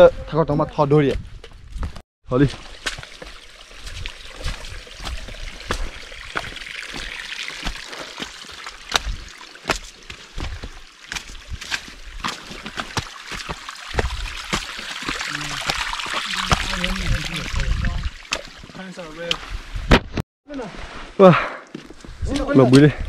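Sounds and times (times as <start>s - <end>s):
water rushing over rocks: 2.4s - 19.5s.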